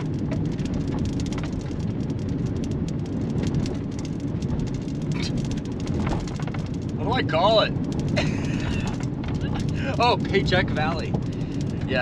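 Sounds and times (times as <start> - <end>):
car rumbling along road: 0.0 - 12.0.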